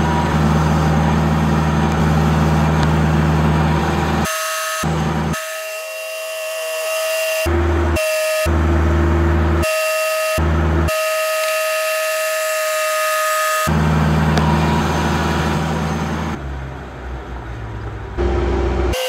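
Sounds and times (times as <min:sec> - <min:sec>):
deep pulsing bass: 0:00.0 - 0:05.4, 0:07.5 - 0:09.7, 0:10.4 - 0:11.0, 0:13.7 - 0:16.4
sustained synthesizer chords: 0:00.0 - 0:05.4, 0:07.3 - 0:11.4, 0:18.2 - 0:19.0.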